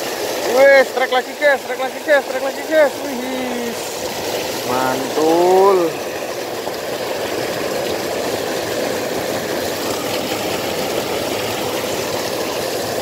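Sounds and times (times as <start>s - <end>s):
water pouring over a weir: 0.0s - 13.0s.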